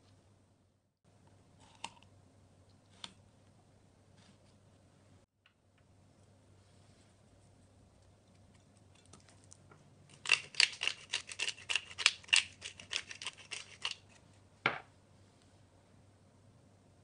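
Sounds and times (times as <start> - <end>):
pepper grinder clicking: 10.1 - 14.0.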